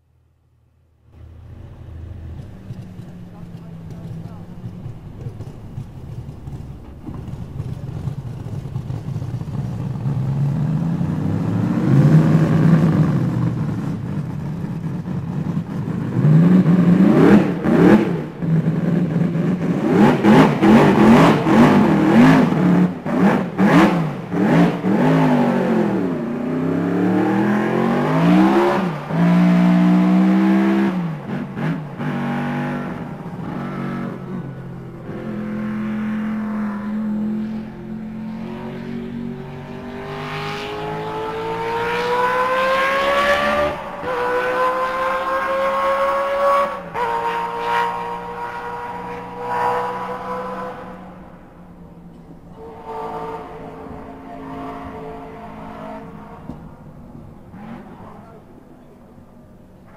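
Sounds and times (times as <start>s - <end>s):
racing engine revving: 1.2s - 51.4s, 52.5s - 58.5s.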